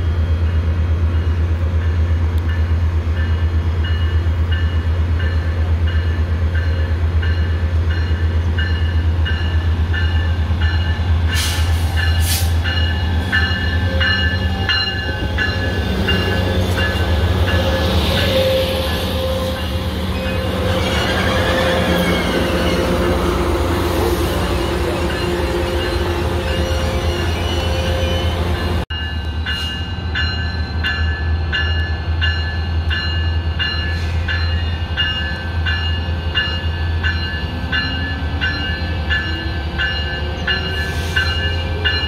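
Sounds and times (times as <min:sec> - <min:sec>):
locomotive bell ringing: 0:01.1 - 0:42.0
train wheels and brakes hissing: 0:03.3 - 0:42.0.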